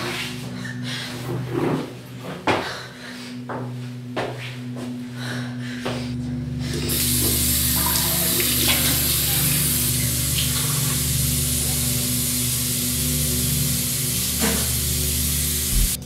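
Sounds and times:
tap water running into sink: 6.8s - 16.0s.

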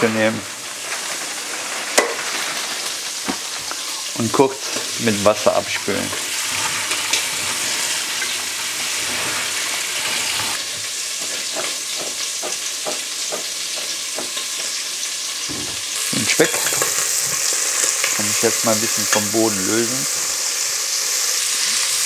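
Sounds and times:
pork sizzling in a pot: 0.0s - 22.0s
fat crackling and popping: 0.1s - 10.6s, 15.4s - 21.9s.

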